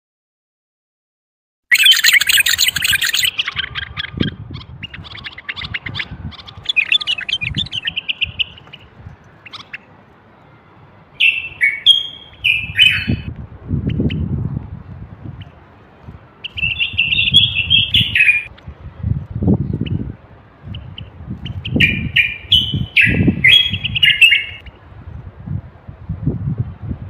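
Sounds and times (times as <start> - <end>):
bird whistled phrases: 1.7 - 8.6, 11.2 - 13.3, 16.4 - 18.5, 21.7 - 24.6
bird chattering and chirping: 1.7 - 9.9, 11.2 - 14.3, 16.4 - 18.7.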